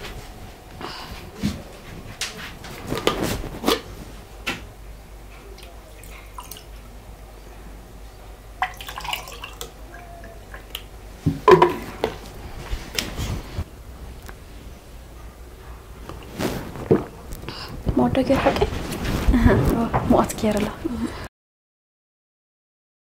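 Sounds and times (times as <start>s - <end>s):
water poured into a glass: 8.6s - 9.7s
jug and glass knocking on table: 11.3s - 12.2s.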